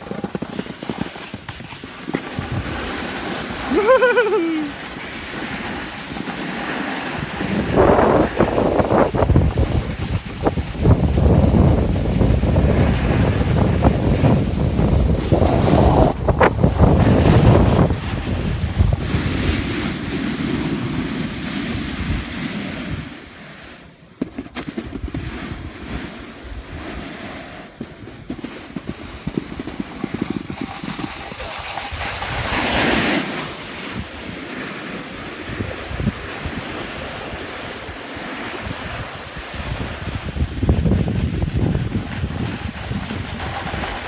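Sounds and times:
skis sliding over snow: 0:00.0 - 0:44.0
wind buffeting microphone: 0:07.1 - 0:23.2, 0:35.2 - 0:44.0.

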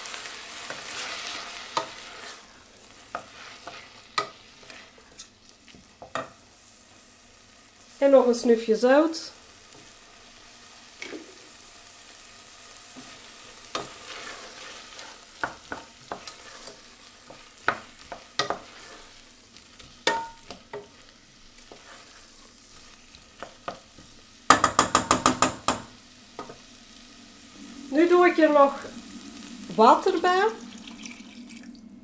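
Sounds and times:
onions sizzling in a pot: 0:00.0 - 0:32.0
wooden spoon stirring: 0:13.0 - 0:19.2, 0:19.8 - 0:25.8
spoon knocking on pot: 0:20.0 - 0:20.9, 0:24.5 - 0:26.6.

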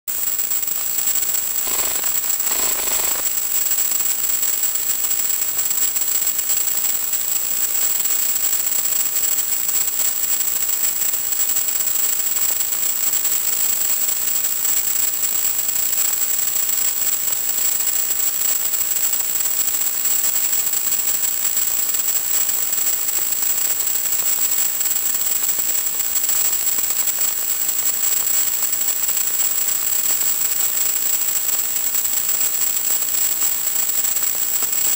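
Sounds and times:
faint crackles: 0:01.7 - 0:03.3
high-pitched whine: 0:01.7 - 0:03.3
radio static hiss: 0:01.7 - 0:03.3.

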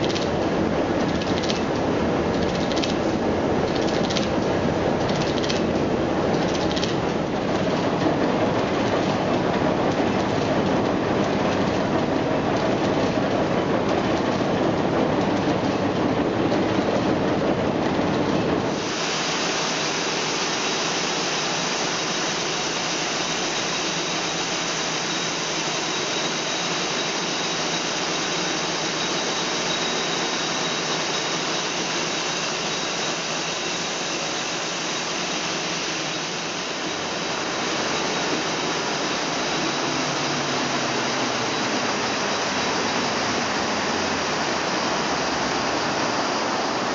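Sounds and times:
textile mill machinery clattering: 0:00.0 - 0:46.9
faint high whine: 0:18.7 - 0:46.9.

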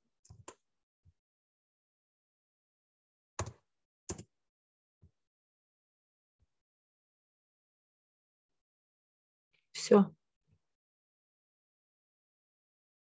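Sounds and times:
computer keyboard key presses: 0:03.4 - 0:04.2.

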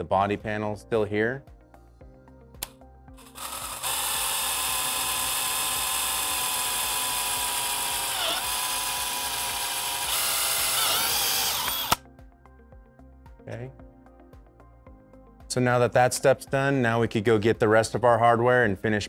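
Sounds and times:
cordless drill drilling metal: 0:03.2 - 0:12.0.

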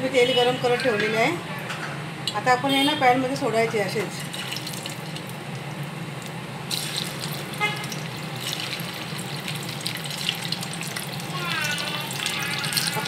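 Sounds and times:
potatoes sizzling in oil: 0:06.7 - 0:13.0.

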